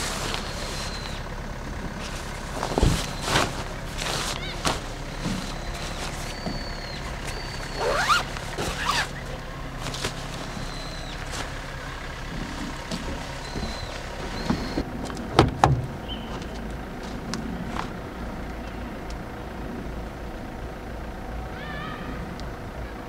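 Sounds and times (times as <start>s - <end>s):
fabric bag rustling: 0.0s - 1.2s, 2.0s - 14.8s
zipper: 7.7s - 9.2s.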